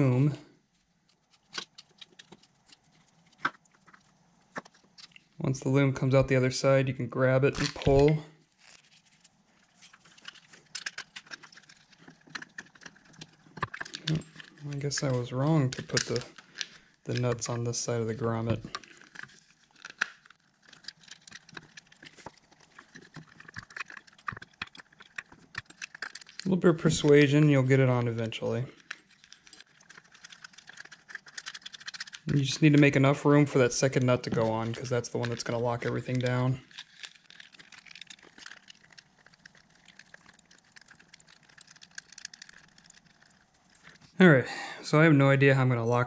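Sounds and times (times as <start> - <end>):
plastic parts clicking and tapping: 1.1 - 5.2, 9.8 - 17.4, 18.4 - 27.3, 28.7 - 44.2.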